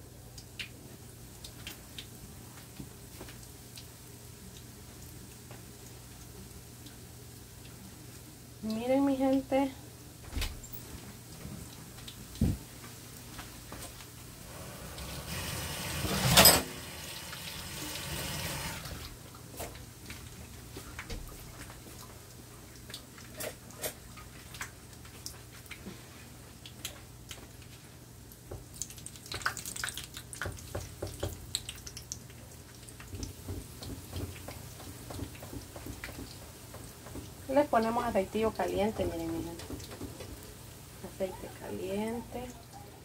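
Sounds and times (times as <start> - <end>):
food sizzling in hot oil: 14.3 - 19.1
oil spattering crackles and pops: 26.5 - 37.5.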